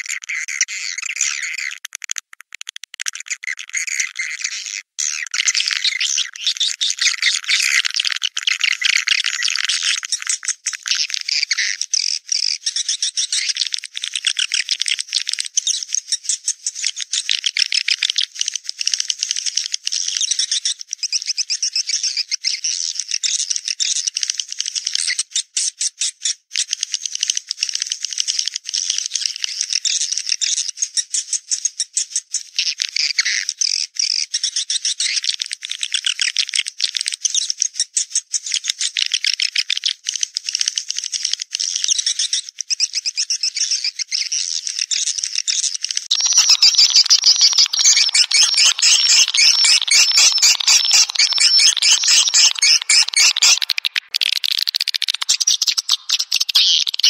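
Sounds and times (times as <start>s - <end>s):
swiftlets chattering trills: 46.1s - 57.0s.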